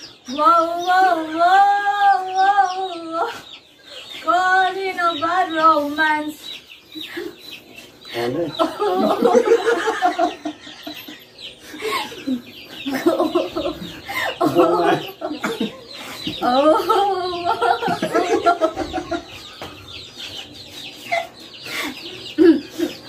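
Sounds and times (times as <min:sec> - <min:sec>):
people laughing: 0:08.2 - 0:19.7, 0:21.0 - 0:23.0.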